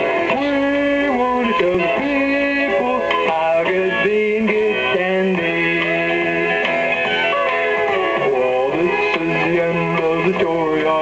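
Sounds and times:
music with gliding held notes: 0.0s - 11.0s.

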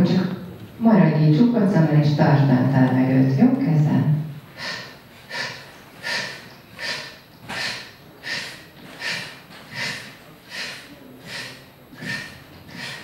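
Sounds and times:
person sipping air through mouth: 4.6s - 13.0s.

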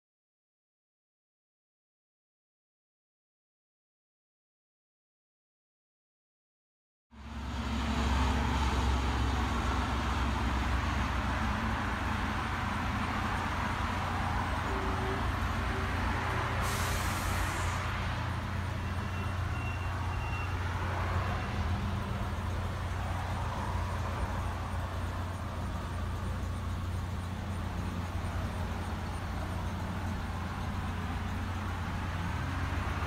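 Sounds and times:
outdoor noise: 7.1s - 33.0s
vehicle engine rumble: 7.1s - 33.0s
short high hiss: 16.6s - 17.8s.

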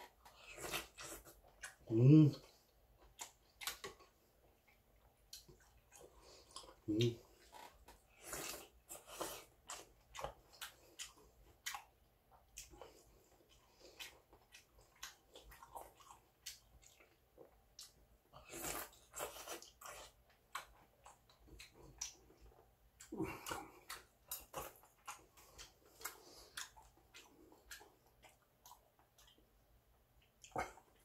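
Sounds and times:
man chewing: 0.0s - 31.0s.

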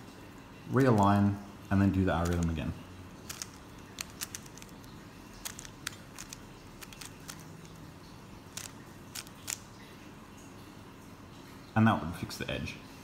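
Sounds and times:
plastic puzzle cube clicking: 2.2s - 2.6s, 3.3s - 7.8s, 8.5s - 9.6s.

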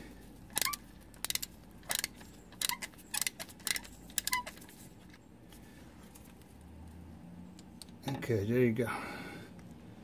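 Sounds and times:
sharp metallic clicks: 0.5s - 4.6s.

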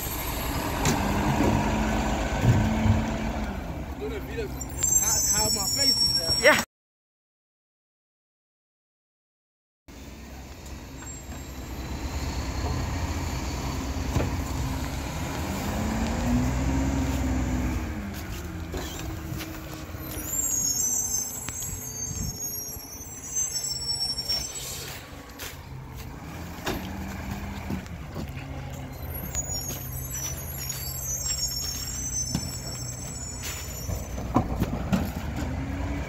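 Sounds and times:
high brake squeal: 0.0s - 1.4s, 4.0s - 6.7s, 10.8s - 17.6s, 18.7s - 25.7s, 28.8s - 35.2s
garbage truck diesel engine: 0.0s - 6.4s, 9.9s - 36.0s.

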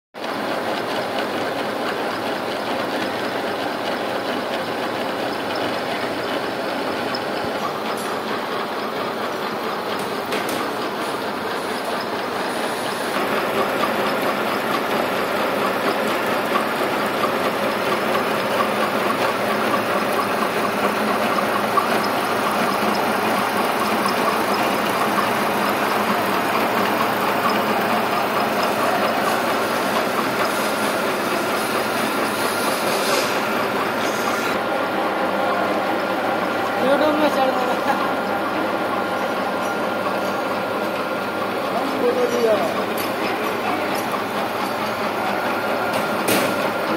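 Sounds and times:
milling machine cutting metal: 0.7s - 34.6s.

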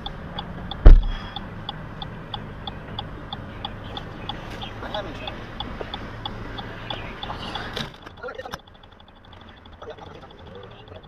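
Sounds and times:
low engine hum: 0.0s - 11.0s
rapid electronic beeping: 3.6s - 11.0s.

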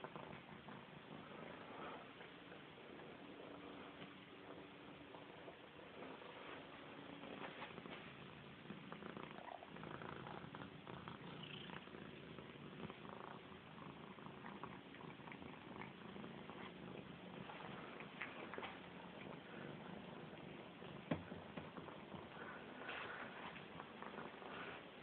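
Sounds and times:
cat purring: 0.0s - 25.0s
small clicks and rustles: 16.4s - 19.4s.

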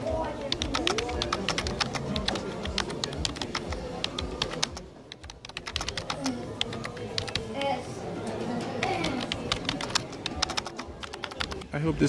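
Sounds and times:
fast keyboard typing: 0.4s - 7.7s, 8.8s - 11.8s.

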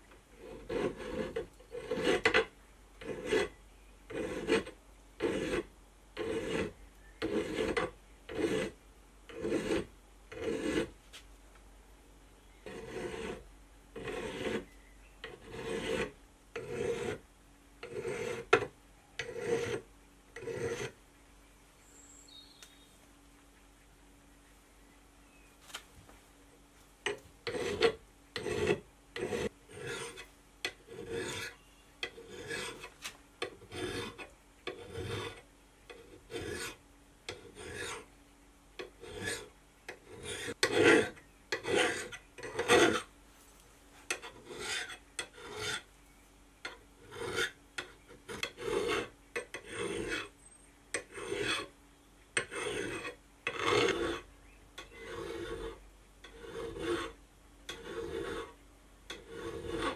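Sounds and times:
file rasping on steel: 0.3s - 11.0s, 12.6s - 13.4s, 14.0s - 17.2s, 17.8s - 21.0s, 27.0s - 38.1s, 38.8s - 43.1s, 44.1s - 45.9s, 46.6s - 50.3s, 50.9s - 51.7s, 52.4s - 59.9s.

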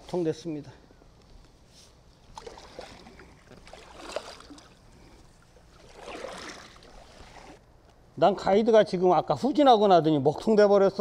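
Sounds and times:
paddle splashing through water: 2.3s - 4.8s, 5.6s - 7.6s.

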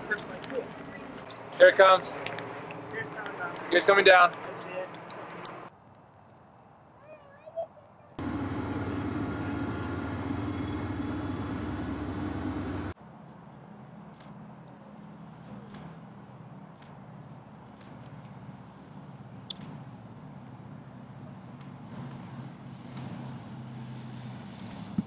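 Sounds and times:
aircraft radial engines droning: 8.2s - 25.0s.

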